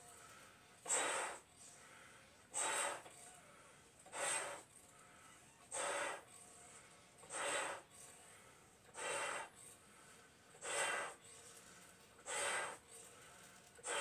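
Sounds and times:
man blowing up balloons: 0.8 - 1.7, 2.5 - 3.2, 4.0 - 4.7, 5.7 - 6.4, 7.2 - 8.0, 8.9 - 9.7, 10.5 - 11.4, 12.2 - 13.0, 13.8 - 14.0.

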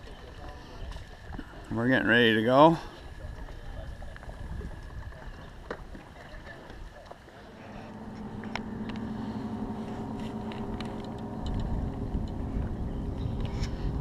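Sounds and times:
wind rumble on microphone: 3.1 - 6.0, 7.5 - 14.0
boat motor running: 7.3 - 14.0.

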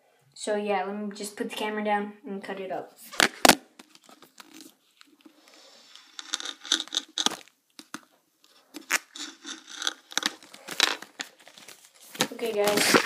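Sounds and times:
plastic packaging crinkling: 3.1 - 13.0.

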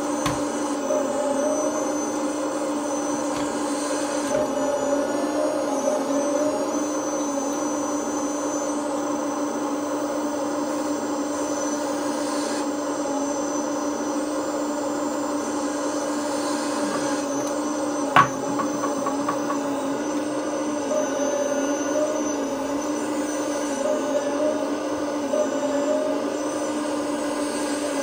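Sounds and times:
sharp knock: 18.2 - 19.7.

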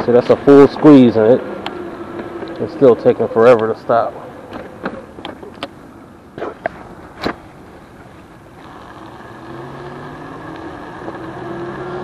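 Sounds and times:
electric hub motor whining: 8.6 - 12.0.

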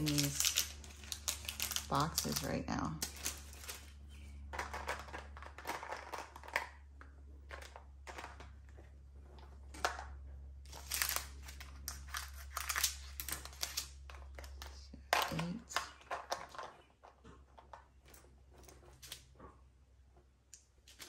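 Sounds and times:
plastic bags crinkling: 0.0 - 6.8, 7.4 - 16.8
plastic containers clicking: 4.5 - 11.1, 13.2 - 18.2
scissors cutting paper: 10.7 - 13.9.

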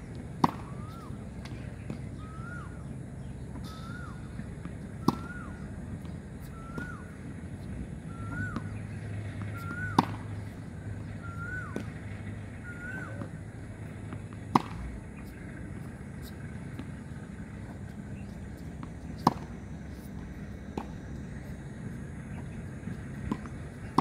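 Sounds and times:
tennis racket hitting ball: 0.4 - 2.0, 4.6 - 7.0, 8.3 - 12.2, 12.9 - 24.0
bird calling: 0.5 - 5.7, 6.3 - 7.2, 8.0 - 13.5.

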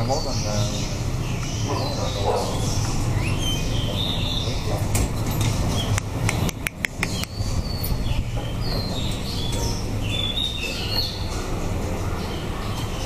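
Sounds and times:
small birds chirping: 0.0 - 13.0
sharp clicks: 4.9 - 7.4.

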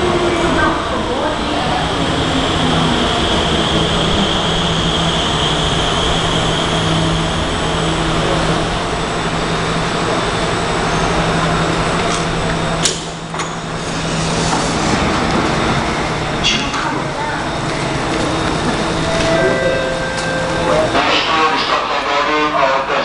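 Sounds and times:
electric train drive hum: 0.0 - 23.0
high-pitched braking whine: 17.8 - 22.1.

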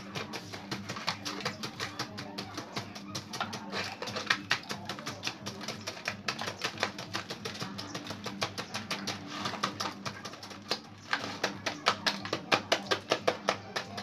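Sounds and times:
paddle scraping metal canister: 3.0 - 5.2.

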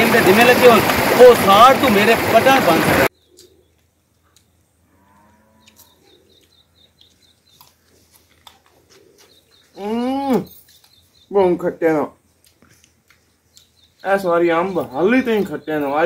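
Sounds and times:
cattle moo: 4.9 - 6.1.

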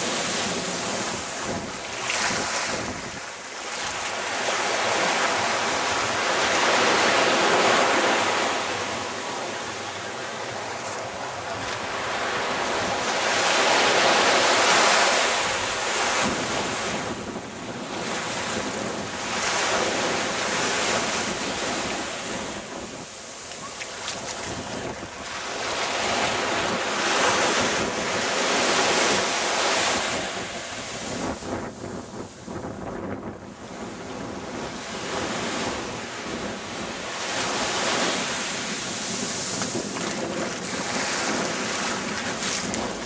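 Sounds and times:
small waves washing onto sand: 0.0 - 43.0
wind: 0.0 - 43.0.

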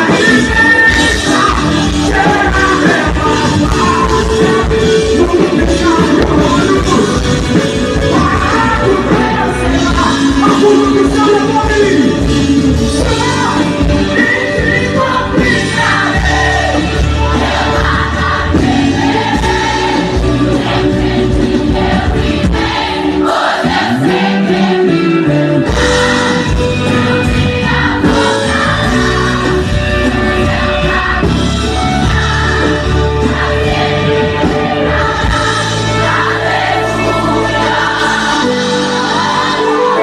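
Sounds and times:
man singing: 0.0 - 16.8
band with keyboards and electric guitar: 0.0 - 40.0.

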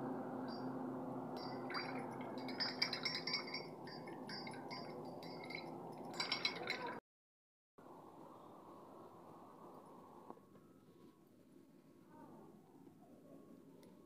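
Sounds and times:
background hum: 0.0 - 7.0
metallic clinks of brush in bowl: 1.4 - 7.0.

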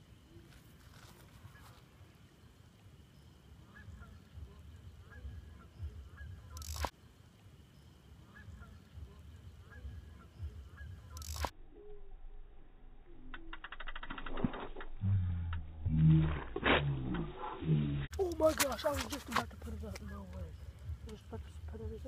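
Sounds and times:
sharp clicks: 6.5 - 6.9, 11.1 - 11.6, 13.2 - 15.6.

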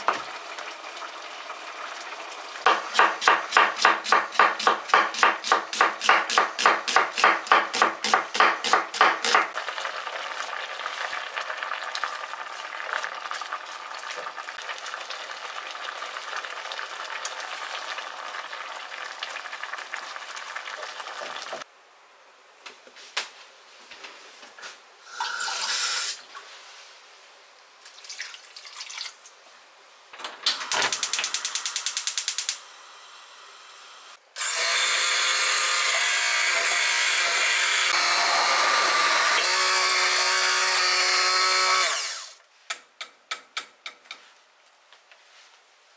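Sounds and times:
food cooking with watery hiss: 0.0 - 21.7, 25.0 - 27.1
knife chopping on wooden board: 2.7 - 9.5.

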